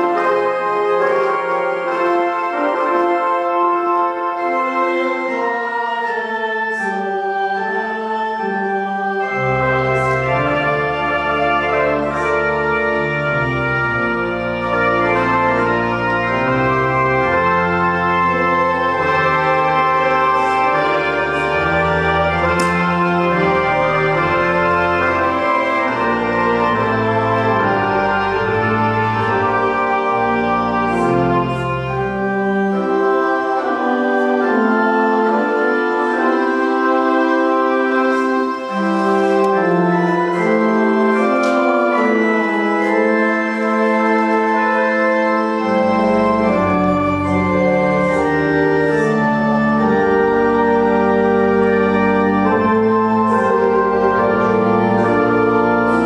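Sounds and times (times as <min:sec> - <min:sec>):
church organ chords: 0:00.0 - 0:56.0.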